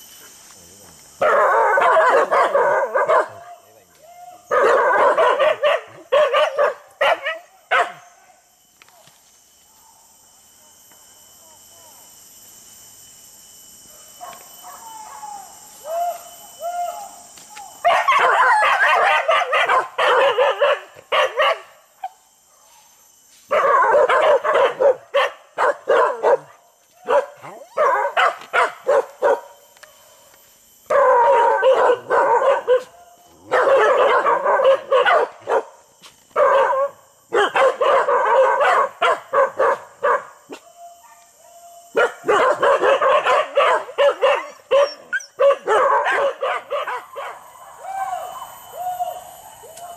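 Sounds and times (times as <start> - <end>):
high insect drone: 0.0 - 49.9
dogs barking: 1.2 - 3.5, 4.5 - 8.0, 17.9 - 21.7, 23.5 - 29.5, 30.9 - 32.9, 33.5 - 35.8, 36.4 - 41.2, 42.0 - 47.4.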